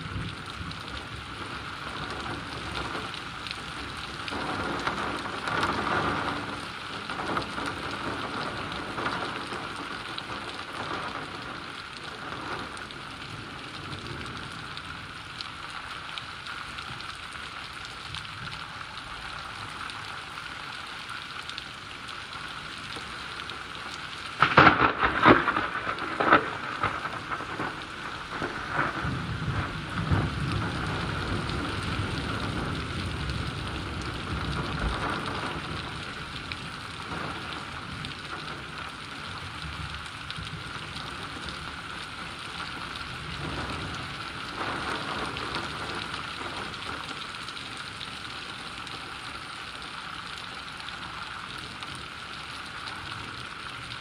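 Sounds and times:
crackling thunder: 0.0s - 15.2s, 23.5s - 49.9s
steady rain falling: 0.0s - 54.0s.

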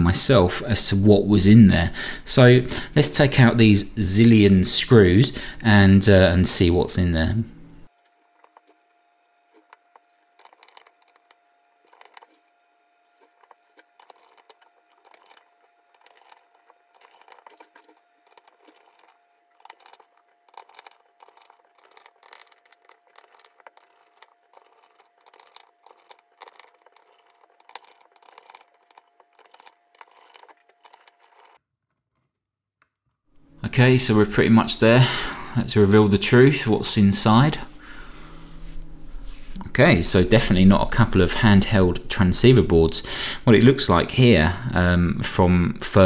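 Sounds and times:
screwdriver metallic clicks and scrapes: 13.4s - 31.6s.

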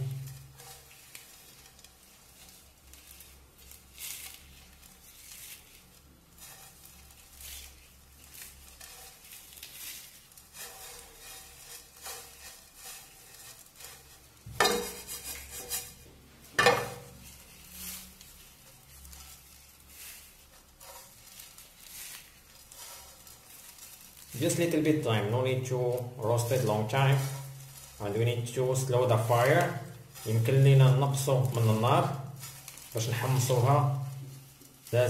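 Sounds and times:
frying pan clattering on burner: 10.5s - 16.0s, 16.6s - 17.2s.

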